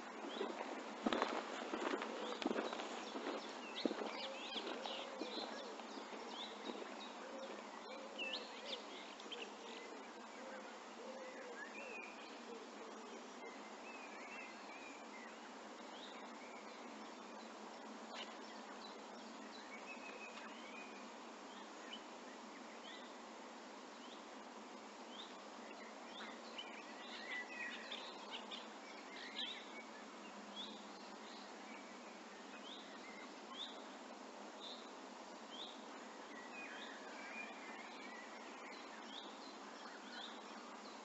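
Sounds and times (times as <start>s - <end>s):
footsteps on grass: 0.0s - 7.6s
birds chirping: 0.0s - 23.2s, 24.0s - 41.0s
faint outdoor hiss: 0.0s - 41.0s.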